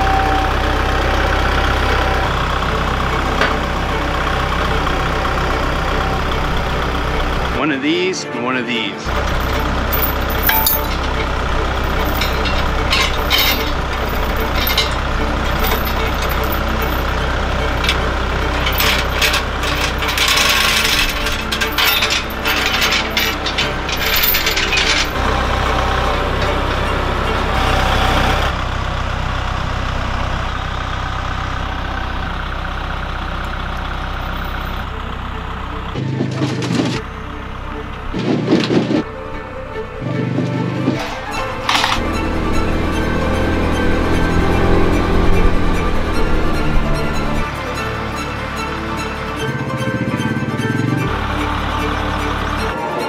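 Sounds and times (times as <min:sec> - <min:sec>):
tow chain clinking: 0:00.0 - 0:07.6, 0:09.0 - 0:28.6, 0:34.0 - 0:34.9, 0:40.2 - 0:49.6
diesel engine idling: 0:00.0 - 0:53.0
uneven mechanical sounds: 0:09.0 - 0:28.6, 0:35.9 - 0:53.0.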